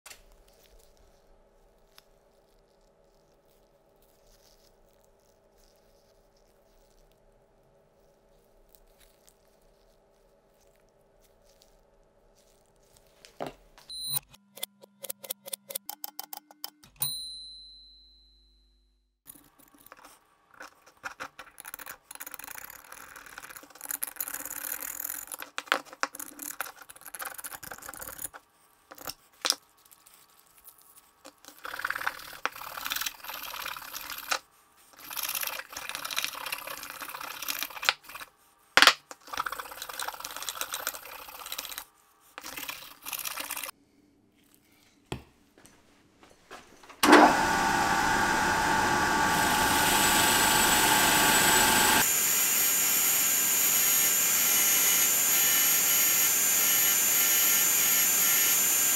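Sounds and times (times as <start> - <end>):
bench grinder whining: 47.0 - 58.9.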